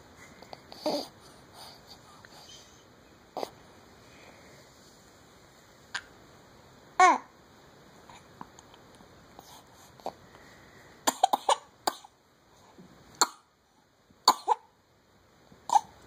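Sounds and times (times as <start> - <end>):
baby coughing: 11.1 - 12.2, 13.2 - 13.5, 14.3 - 14.7, 15.7 - 15.9.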